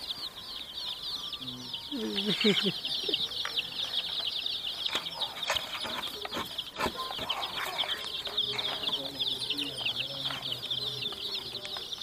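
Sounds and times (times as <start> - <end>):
baby chickens peeping: 0.0 - 12.0.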